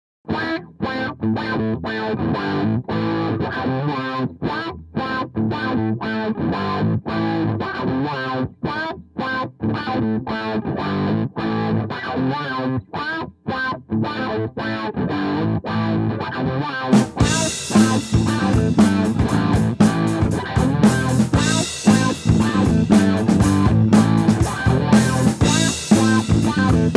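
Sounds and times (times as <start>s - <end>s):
distorted electric guitar riff: 0.3s - 26.9s.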